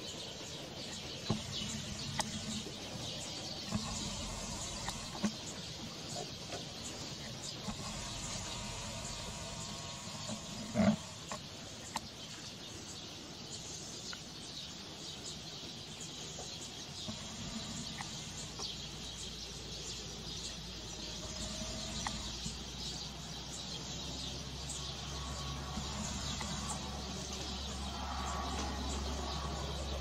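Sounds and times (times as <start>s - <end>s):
faint chirps: 0.0s - 12.4s, 16.4s - 30.0s
loud animal call: 7.6s - 11.4s, 24.8s - 30.0s.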